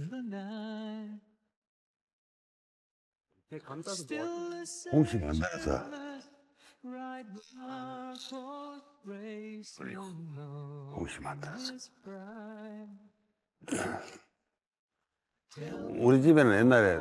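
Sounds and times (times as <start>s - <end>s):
man singing unaccompanied: 3.6s - 6.3s.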